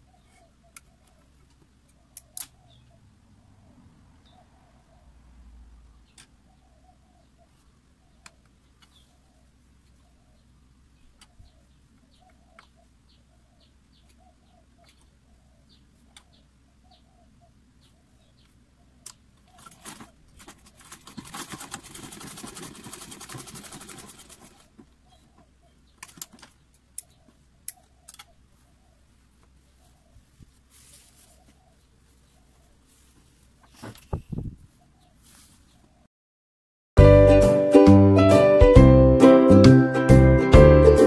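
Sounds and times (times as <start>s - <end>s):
sewing machine stitching: 19.7s - 24.7s.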